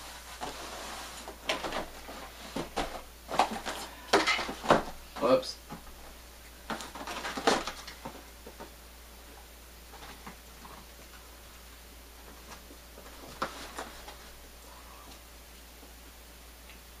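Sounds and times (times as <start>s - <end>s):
cardboard rustling: 0.0s - 8.8s, 9.9s - 10.9s, 12.2s - 14.6s
cardboard box clatter: 6.7s - 8.2s.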